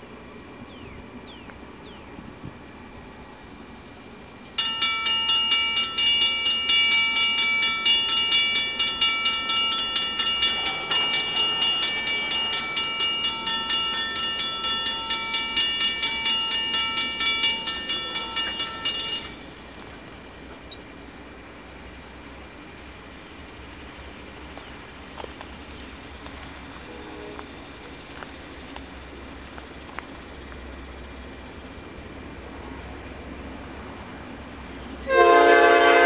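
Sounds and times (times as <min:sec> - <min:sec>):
railroad crossing warning bell: 0:04.6 - 0:20.0.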